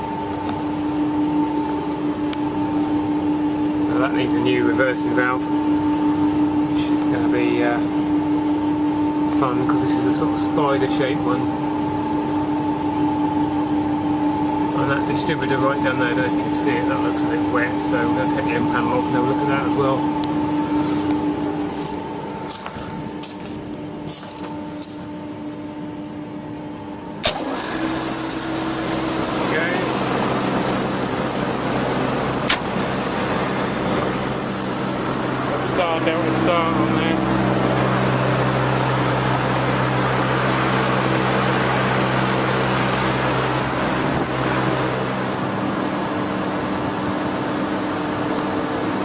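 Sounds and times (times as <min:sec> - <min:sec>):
chiller mechanical hum: 0:00.0 - 0:49.0
sharp click: 0:32.5 - 0:32.7.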